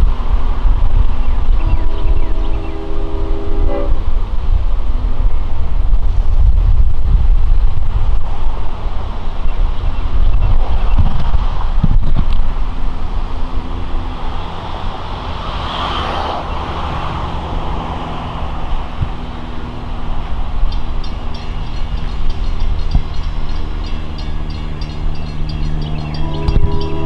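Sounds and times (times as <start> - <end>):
locomotive diesel engine drone: 0.0 - 27.0
rapid high-pitched ringing: 20.7 - 27.0.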